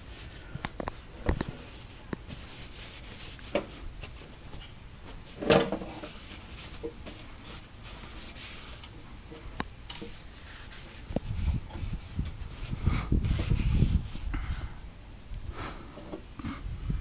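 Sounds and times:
paper towels wiping metal: 0:00.0 - 0:14.3
parts handling knocks: 0:05.4 - 0:06.1.

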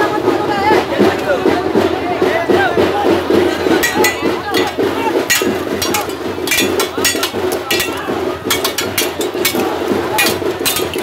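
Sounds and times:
crowd chatter: 0:00.0 - 0:11.0
sticks and blades clashing: 0:03.7 - 0:11.0.

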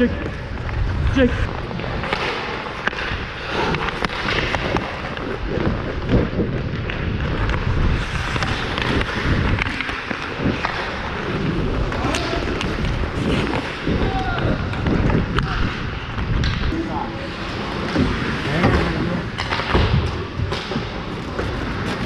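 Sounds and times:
skate blades scraping ice: 0:00.1 - 0:22.0
wind buffeting microphone: 0:04.4 - 0:16.7.

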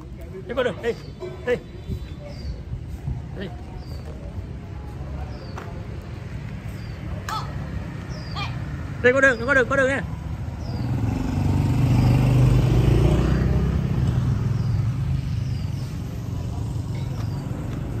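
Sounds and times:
motor scooters passing: 0:06.1 - 0:18.0.

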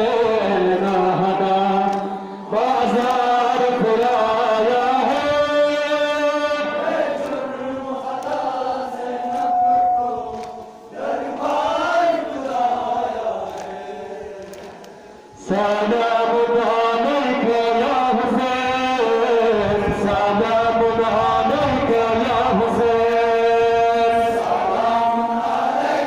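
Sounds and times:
men chanting a sung lament: 0:00.0 - 0:26.0.

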